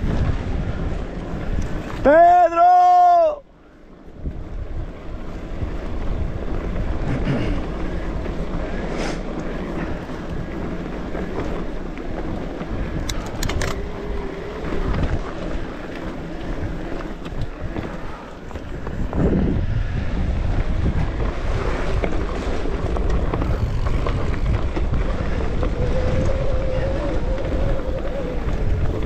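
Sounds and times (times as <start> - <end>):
bike rolling over dirt trail: 0.0 - 2.4, 3.9 - 29.0
wind on microphone: 0.0 - 3.4, 4.0 - 29.0
sharp clicks: 13.0 - 13.8.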